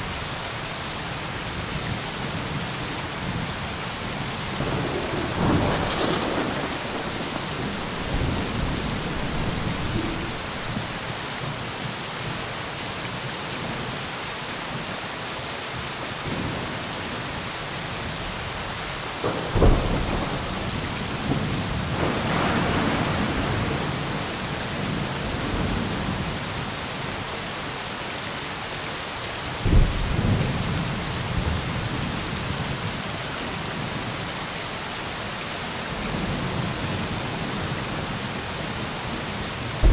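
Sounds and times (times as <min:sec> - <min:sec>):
steady rain: 0:00.0 - 0:39.9
thunder cracking and rumbling: 0:04.2 - 0:11.2, 0:19.2 - 0:26.2.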